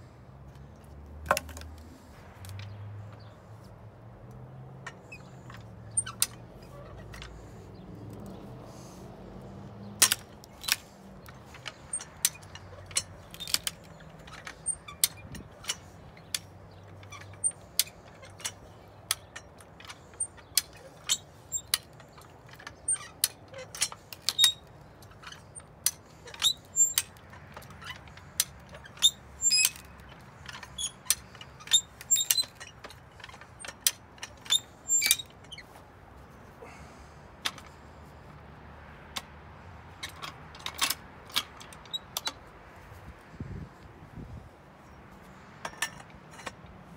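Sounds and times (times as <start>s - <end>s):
jack pins clacking: 9.8s - 35.7s.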